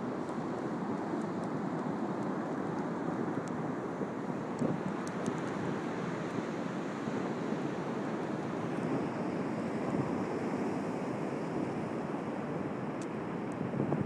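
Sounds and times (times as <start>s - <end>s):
surf washing: 0.0s - 14.0s
wind buffeting microphone: 4.5s - 5.8s, 13.4s - 14.0s.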